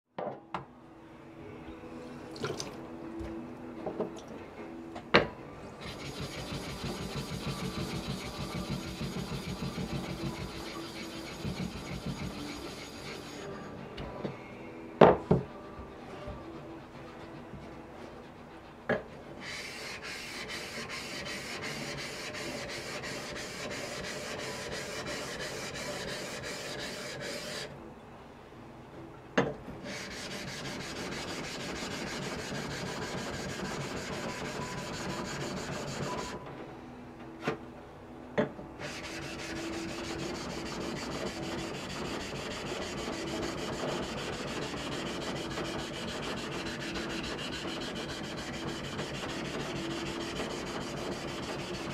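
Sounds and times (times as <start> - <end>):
blade grinding on whetstone: 5.8 - 13.7, 19.4 - 27.7, 29.9 - 36.4, 38.8 - 51.9.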